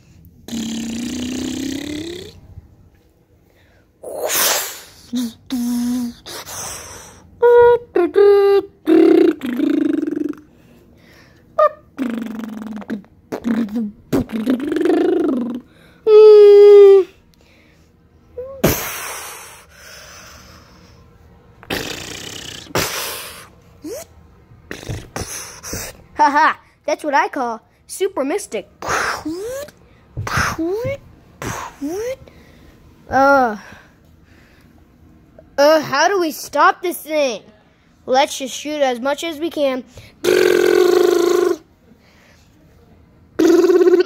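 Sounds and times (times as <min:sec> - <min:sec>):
child humming engine sound: 0:00.4 - 0:02.5, 0:04.0 - 0:10.7, 0:11.6 - 0:17.2, 0:21.7 - 0:26.0, 0:28.8 - 0:32.3, 0:40.2 - 0:41.7, 0:43.4 - 0:44.0
child's rising blip: 0:00.5 - 0:02.4, 0:40.2 - 0:41.6
mouth hissing whoosh: 0:00.5 - 0:02.4, 0:04.0 - 0:07.2, 0:21.7 - 0:24.1
short hummed notes: 0:07.4 - 0:10.5.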